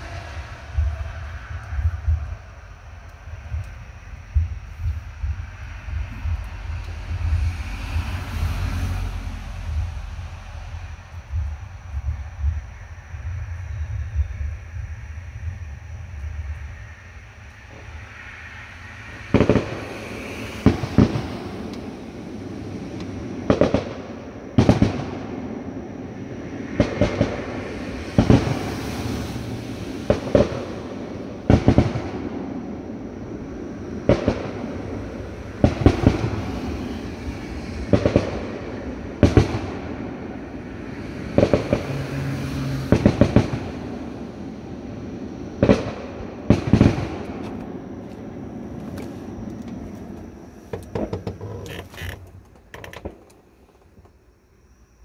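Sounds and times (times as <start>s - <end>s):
steady noisy background: 0.0s - 55.0s
fireworks bangs: 17.6s - 54.0s.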